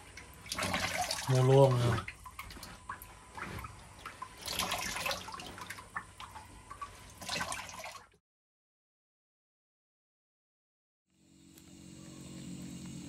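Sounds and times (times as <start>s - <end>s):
water splashing and trickling: 0.0s - 8.2s.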